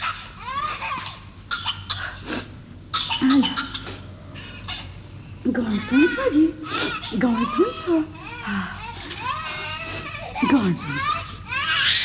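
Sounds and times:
crying wail: 7.1s - 12.0s.

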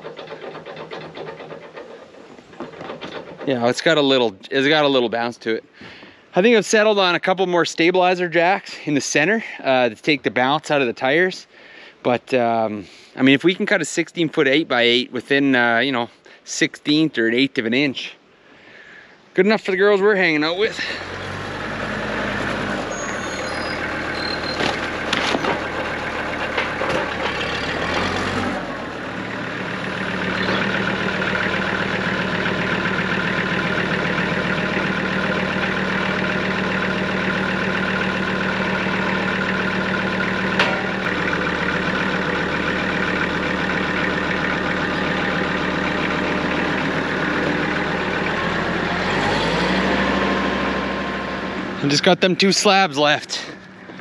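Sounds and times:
tractor diesel engine running: 0.0s - 7.1s, 19.7s - 54.0s.

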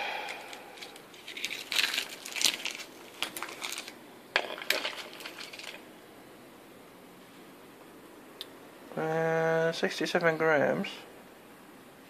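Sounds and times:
cables clattering in a plastic bowl: 1.2s - 5.8s.

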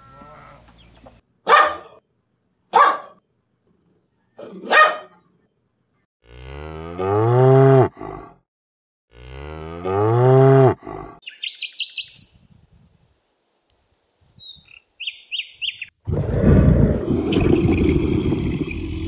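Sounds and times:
cow mooing: 6.2s - 8.3s, 9.1s - 11.2s
bird chirping: 11.2s - 16.0s.

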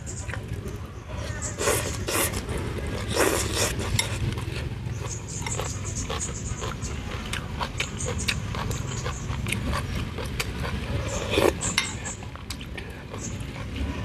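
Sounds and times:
chewing: 0.1s - 14.0s
person slurping soup: 1.2s - 4.4s, 9.3s - 12.1s.

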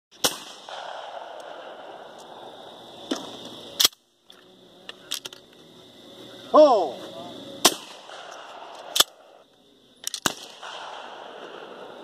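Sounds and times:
shotgun shots: 0.2s - 2.1s, 7.6s - 9.3s, 10.1s - 11.9s.

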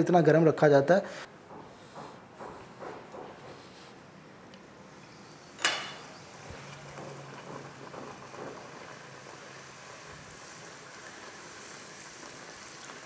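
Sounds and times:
dough deep-frying in oil: 4.9s - 13.0s.

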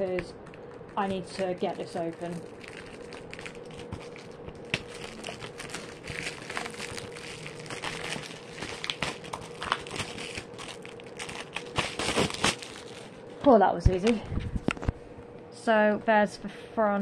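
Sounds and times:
cellophane crinkling and tearing: 0.4s - 13.4s.

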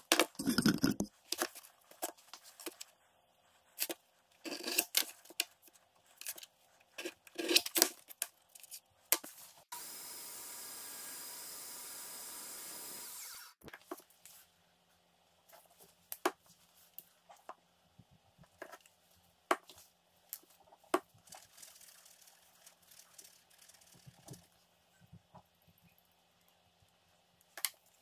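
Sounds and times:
plastic bottles clicking and tapping: 0.1s - 1.1s
bandsaw cutting sheet: 9.7s - 13.6s.

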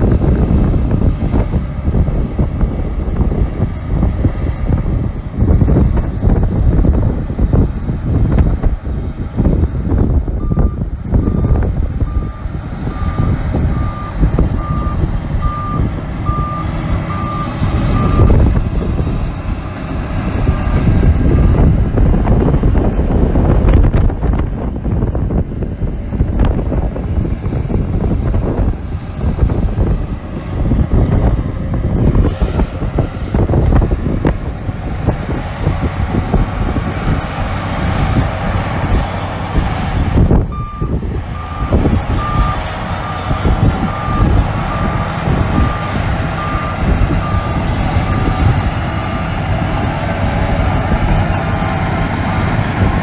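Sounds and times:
bulldozer diesel engine: 0.0s - 53.0s
reversing alarm beeping: 10.4s - 18.4s, 40.5s - 48.4s.

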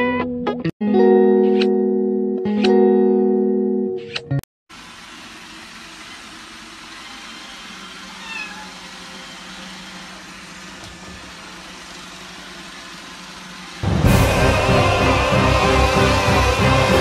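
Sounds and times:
robot vacuum cleaner whirring: 4.7s - 13.9s
kitten meowing: 8.2s - 8.8s.

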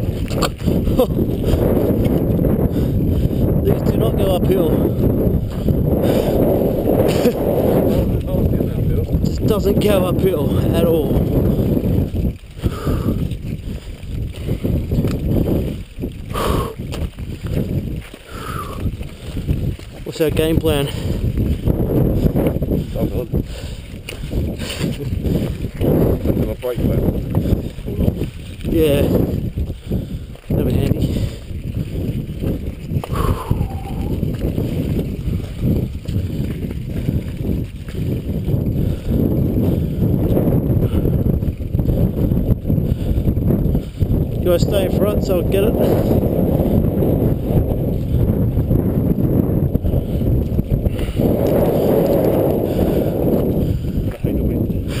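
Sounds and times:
wheels knocking on rocks: 0.0s - 2.6s, 11.2s - 22.7s, 23.9s - 40.6s
bike rattling: 0.0s - 55.0s
wind buffeting microphone: 0.0s - 55.0s
tyres crunching over stones: 13.2s - 22.7s.

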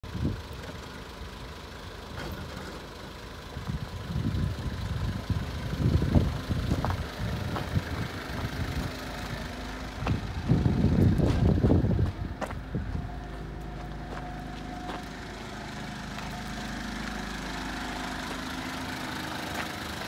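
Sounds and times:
diesel engine idling: 0.0s - 20.0s
wind buffeting microphone: 3.6s - 9.0s, 10.0s - 13.3s.

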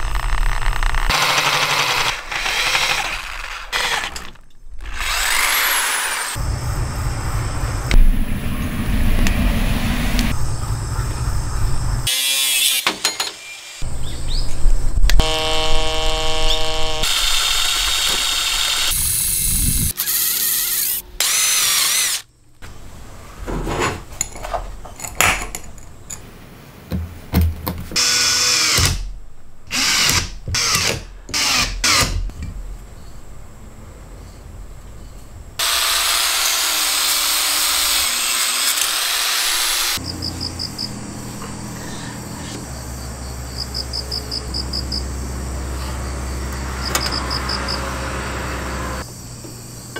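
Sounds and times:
power drill boring into steel: 1.1s - 6.4s
crickets chirping: 6.4s - 12.1s, 32.6s - 35.6s, 40.0s - 49.9s.

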